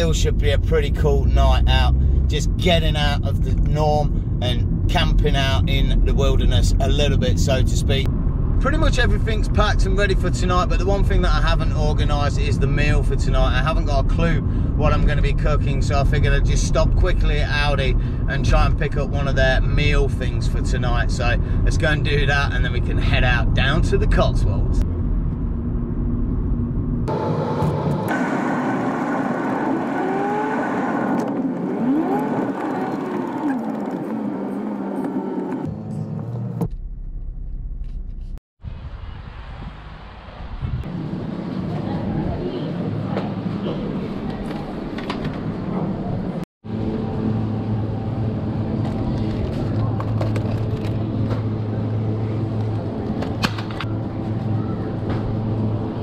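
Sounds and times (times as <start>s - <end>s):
car engine: 0.0s - 12.0s, 23.0s - 38.4s, 45.0s - 56.0s
road noise: 0.0s - 56.0s.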